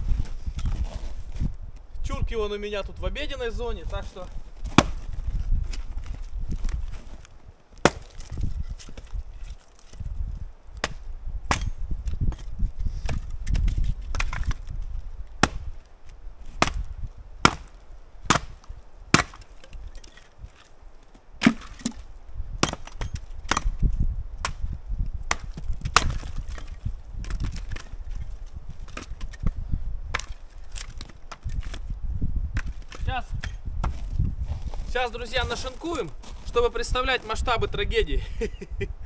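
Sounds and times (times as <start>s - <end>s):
axe chopping wood: 4.6s - 5.2s, 7.8s - 9.2s, 10.8s - 14.7s, 15.4s - 15.8s, 16.6s - 20.7s, 21.4s - 22.0s, 22.6s - 24.7s, 25.3s - 27.9s, 28.9s - 29.5s, 30.1s - 31.8s.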